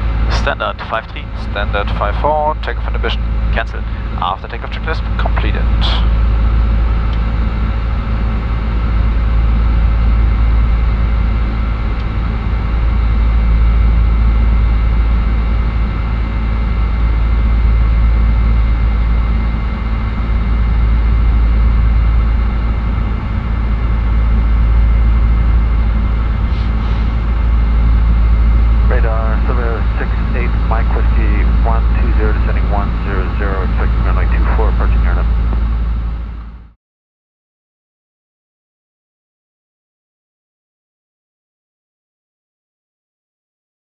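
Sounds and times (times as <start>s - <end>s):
steady tones: 0.0s - 9.0s, 11.0s - 36.6s
aircraft engine rumble: 0.0s - 36.8s.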